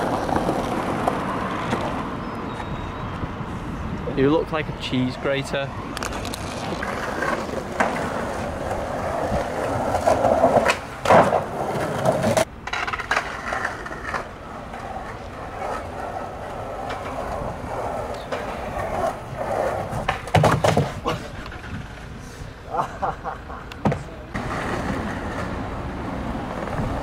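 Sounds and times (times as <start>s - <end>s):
skateboard clacks: 0.0s - 2.1s, 6.0s - 22.1s, 23.6s - 27.0s
skateboard wheels rolling on planks: 0.0s - 2.7s, 5.8s - 22.5s, 23.8s - 27.0s.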